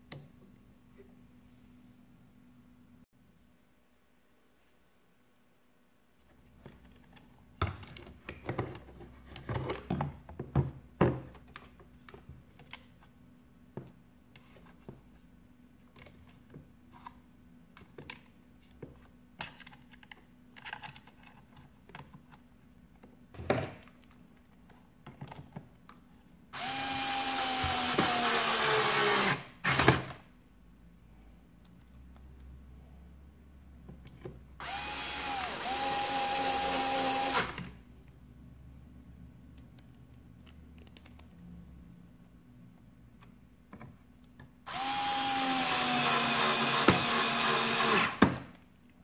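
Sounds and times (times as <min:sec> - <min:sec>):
electric screwdriver whining: 0:26.6 - 0:30.0, 0:34.6 - 0:37.6, 0:44.7 - 0:48.2.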